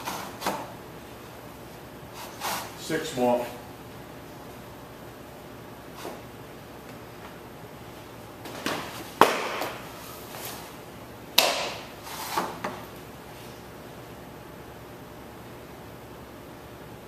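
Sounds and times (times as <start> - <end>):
ball smacking into target: 8.6 - 9.8.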